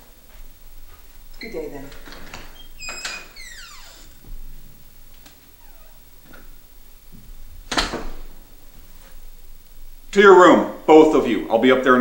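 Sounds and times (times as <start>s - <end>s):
faint door creaks: 1.4s - 6.6s
door closing with a knock: 2.0s - 4.5s, 7.2s - 8.3s.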